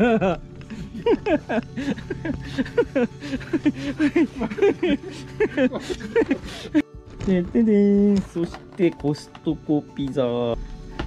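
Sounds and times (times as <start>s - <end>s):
person talking indistinctly: 7.2s - 10.6s.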